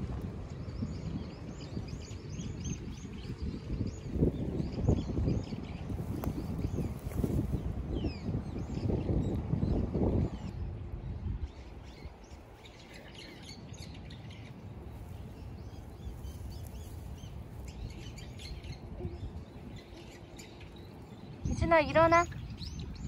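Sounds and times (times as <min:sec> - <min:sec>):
songbirds chirping: 0:00.4 - 0:23.0
low outdoor rumble: 0:09.4 - 0:23.0.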